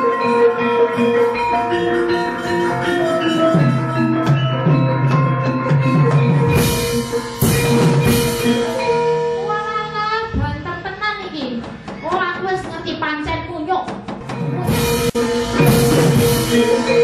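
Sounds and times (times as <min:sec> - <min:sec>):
ringing metallophone notes: 0:00.0 - 0:11.1, 0:14.2 - 0:17.0
low drumming: 0:13.9 - 0:17.0.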